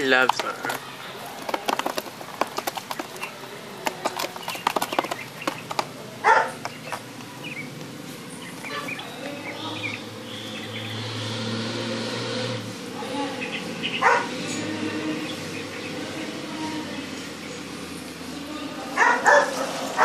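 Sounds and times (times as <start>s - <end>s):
crayfish clicking and clattering: 0.0s - 8.0s.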